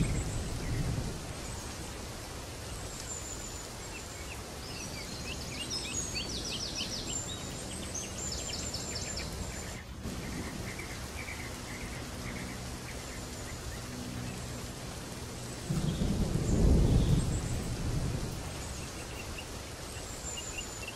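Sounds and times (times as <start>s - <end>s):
noisy ambience: 0.0s - 20.9s.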